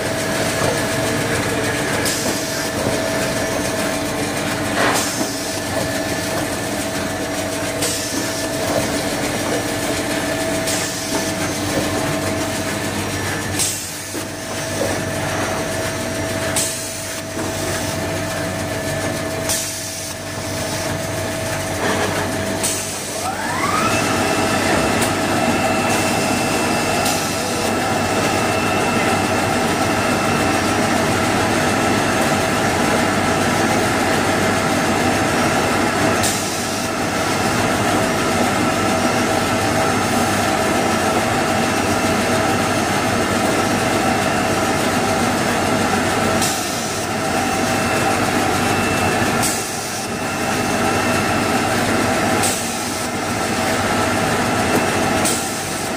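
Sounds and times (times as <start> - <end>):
log-cutting machine running: 0.0 - 55.9
motor whine rising in pitch: 23.3 - 31.0.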